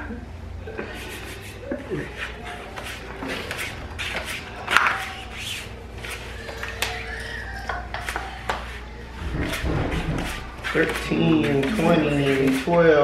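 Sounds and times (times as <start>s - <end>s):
playing cards dealt on felt: 2.2s - 7.1s, 10.2s - 12.8s.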